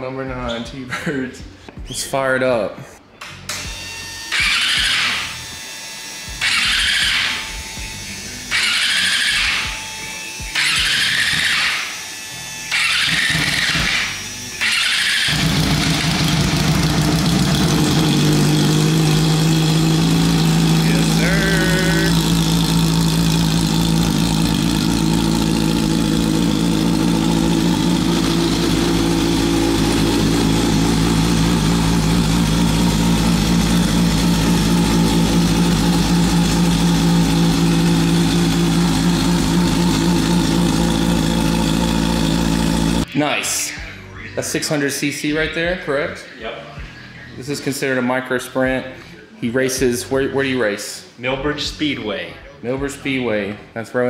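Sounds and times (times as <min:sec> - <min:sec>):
racing car engine running: 0:12.7 - 0:43.1.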